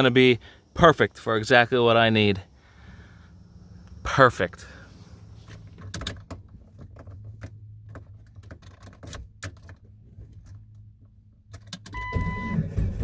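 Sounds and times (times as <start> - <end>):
key clicking in ignition: 5.5 - 10.8, 11.5 - 12.1.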